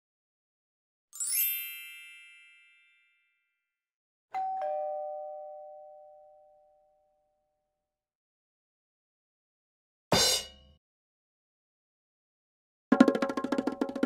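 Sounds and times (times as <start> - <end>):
sparkling chime flourish: 1.2 - 3.4
two-note ding-dong chime: 4.4 - 7.4.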